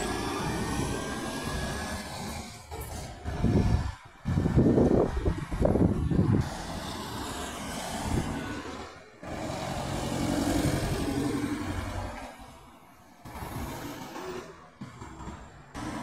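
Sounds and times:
truck diesel engine passing: 0.0 - 16.0.

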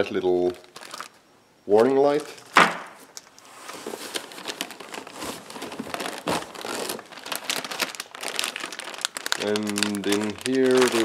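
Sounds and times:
plastic packaging crinkling: 0.4 - 1.2, 2.1 - 11.0
hands rummaging in cardboard box: 3.6 - 11.0.

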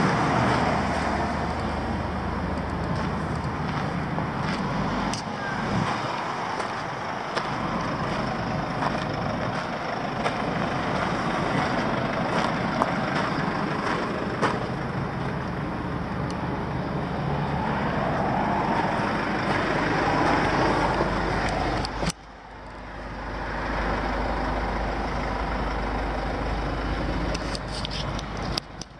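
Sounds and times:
vehicle rumble: 0.0 - 28.9
wind noise: 2.8 - 7.0.

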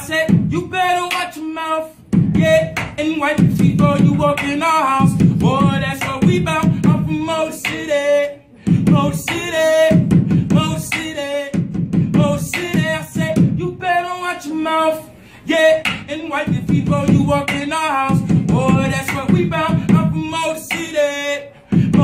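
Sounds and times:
man rapping: 0.0 - 22.0
pen tapping a beat: 2.2 - 7.9, 15.9 - 21.0.

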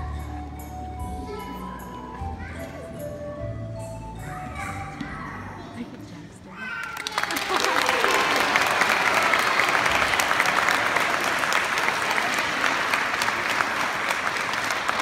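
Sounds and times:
crowd applauding: 6.8 - 15.0.

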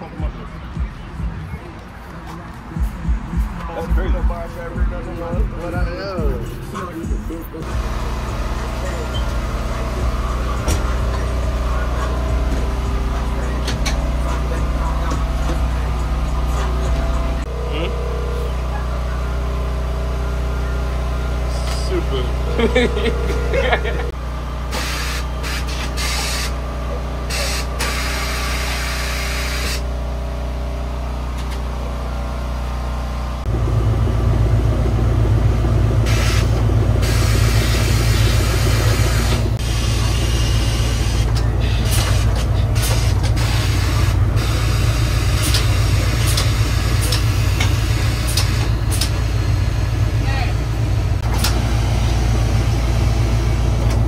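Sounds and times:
steady machine hum: 7.6 - 54.0
air hissing from air line: 24.7 - 26.6.

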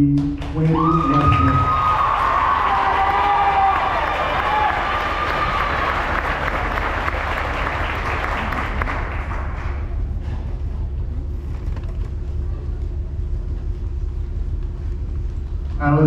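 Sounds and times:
audience applause: 0.4 - 10.2
steady low rumble: 3.8 - 16.0.

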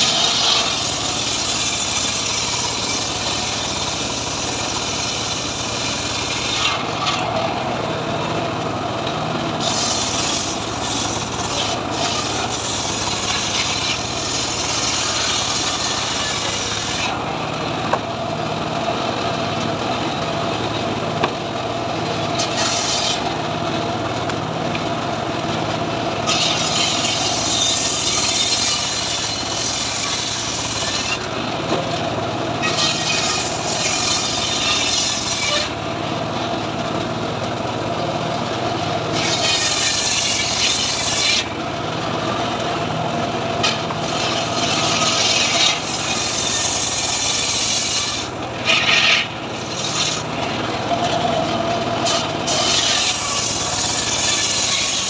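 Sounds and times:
saw blade ripping through wood: 0.0 - 7.5, 9.6 - 17.2, 22.4 - 23.2, 26.2 - 31.3, 32.6 - 35.7, 39.1 - 41.5, 43.6 - 50.3, 52.0 - 55.0
saw bench engine hum: 0.0 - 55.0.

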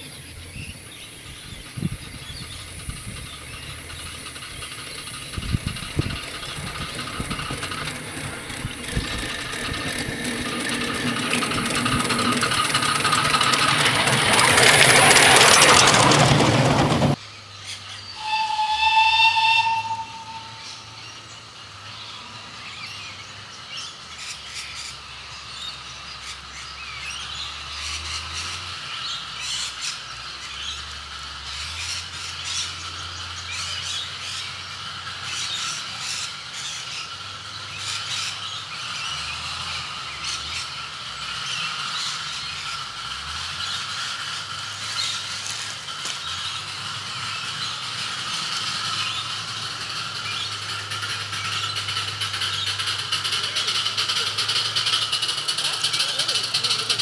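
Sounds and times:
train low rumble: 0.0 - 57.0
birds chirping and calling: 35.2 - 57.0.

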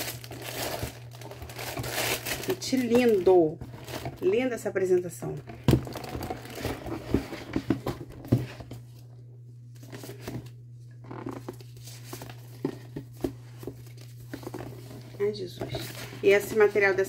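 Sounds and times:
cardboard box being opened: 0.0 - 2.5, 5.7 - 8.8
paper rustling: 0.0 - 4.2, 11.2 - 17.0.

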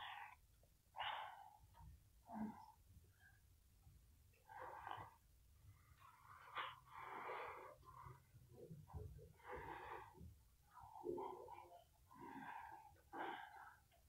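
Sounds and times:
faint breathing: 0.0 - 3.4, 4.3 - 14.0.

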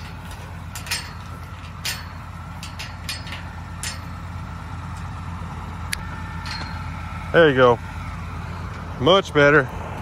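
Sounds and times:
metal chain clinking and rattling: 0.0 - 4.3, 6.4 - 6.9
diesel tractor engine idling: 0.0 - 10.0.

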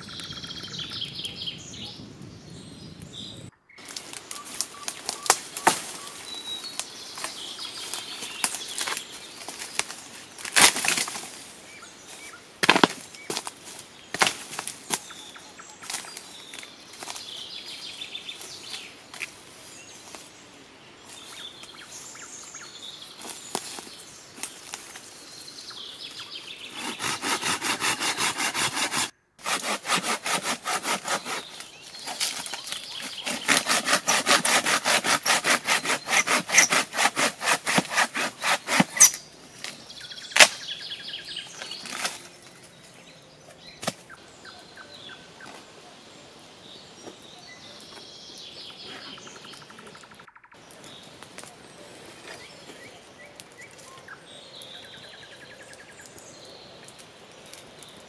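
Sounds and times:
birds singing faintly: 0.0 - 58.0
wood cracking: 3.8 - 11.5, 12.6 - 15.1, 26.7 - 40.6, 41.6 - 42.3
hand saw cutting log: 26.7 - 39.2.

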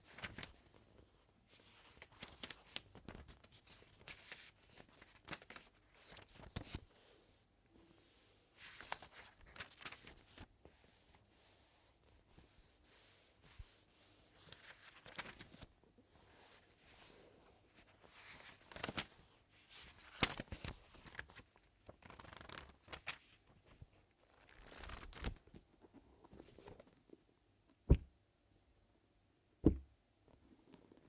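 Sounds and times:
book pages turning: 0.2 - 0.6, 1.8 - 6.8, 8.6 - 10.5, 14.4 - 15.7, 18.0 - 23.4, 24.3 - 27.0
book thumps: 27.8 - 28.2, 29.6 - 29.9.

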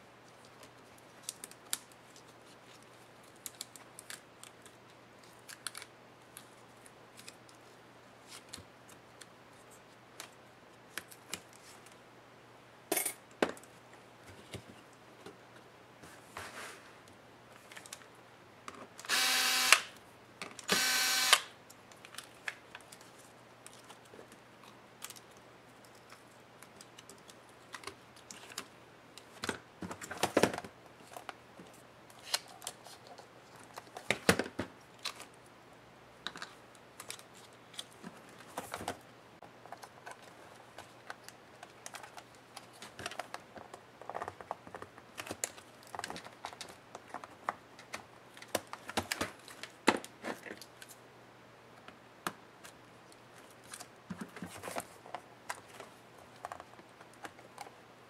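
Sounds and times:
electric screwdriver whirring: 19.1 - 19.9, 20.7 - 21.5.

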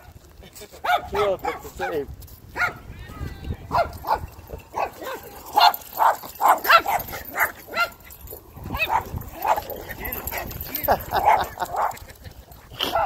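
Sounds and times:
dog barking: 0.8 - 2.0, 2.6 - 2.8, 3.7 - 8.0, 8.7 - 10.2, 10.9 - 12.0.

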